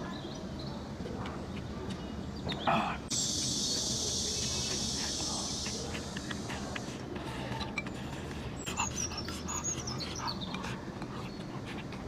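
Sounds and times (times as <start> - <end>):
steady high hiss: 2.5 - 12.0.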